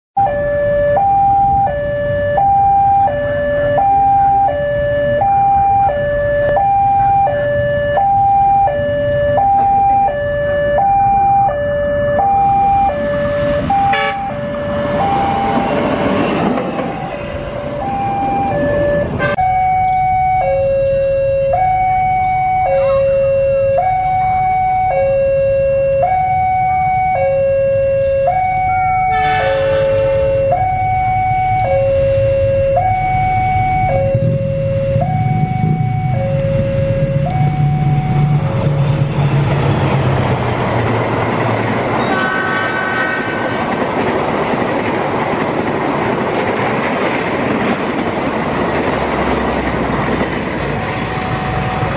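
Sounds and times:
level crossing alarm: 0.2s - 42.5s, 48.8s - 51.9s
rushing noise: 27.7s - 51.9s.

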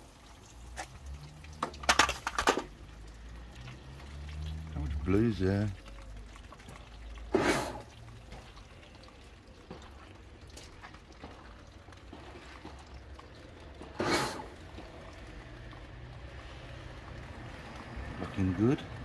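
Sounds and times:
hissing water splashes: 0.0s - 19.0s.

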